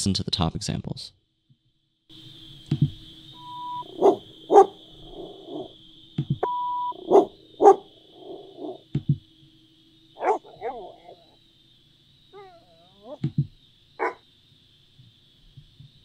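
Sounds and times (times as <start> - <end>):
steady high whine: 2.1 - 15.3
short beeps: 3.4 - 3.9, 6.4 - 7.0
recorded dog barks: 3.4 - 5.7, 6.9 - 8.8, 10.2 - 11.4, 12.4 - 13.3, 14.0 - 14.2.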